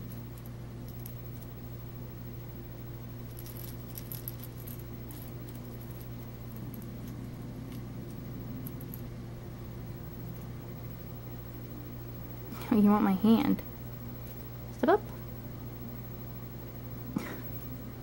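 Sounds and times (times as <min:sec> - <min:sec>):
low hum: 0:00.0 - 0:18.0.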